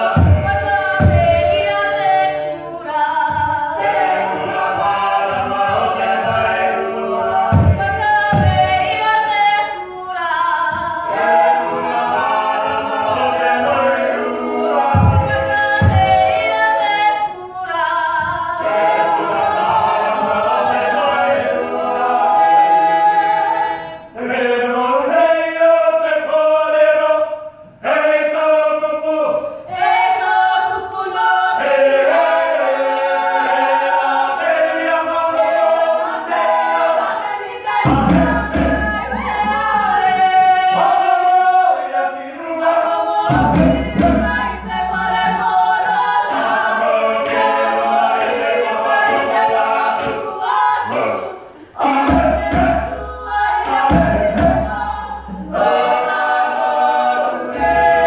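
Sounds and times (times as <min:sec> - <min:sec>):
unaccompanied choir singing: 0:00.0 - 0:58.0
deep thuds: 0:07.4 - 0:09.0.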